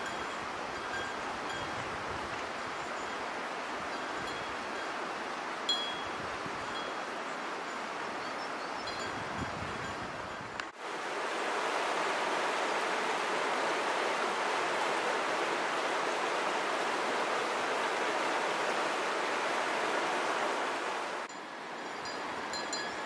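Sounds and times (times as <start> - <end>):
river rushing over stones: 10.8 - 23.0.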